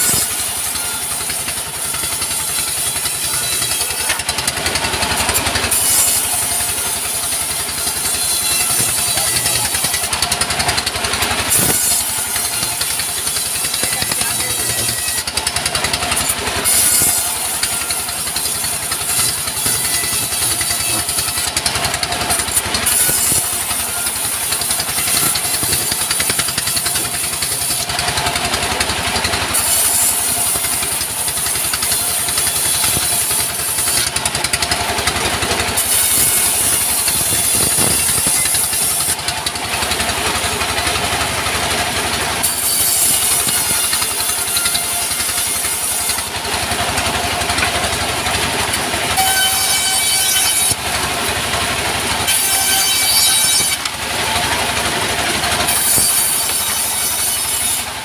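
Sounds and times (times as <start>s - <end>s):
bandsaw blade hissing: 0.0s - 28.2s, 29.5s - 39.3s, 42.3s - 46.5s, 52.2s - 53.9s, 55.6s - 58.0s
diesel engine running: 0.0s - 58.0s.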